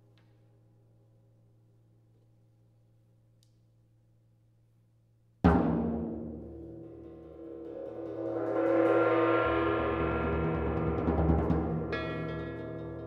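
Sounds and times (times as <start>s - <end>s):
mallet roll on gongs and cymbals: 6.6s - 13.0s.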